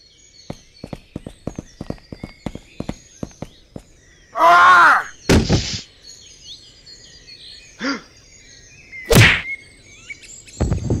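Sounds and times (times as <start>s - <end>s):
birds chirping: 0.0s - 11.0s
loud sharp whack: 5.3s - 5.8s, 9.1s - 9.5s.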